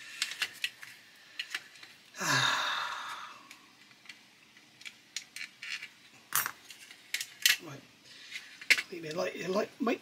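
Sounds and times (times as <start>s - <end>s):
small plastic parts handled: 0.0s - 2.1s, 3.5s - 7.6s
man sighing: 2.1s - 3.5s.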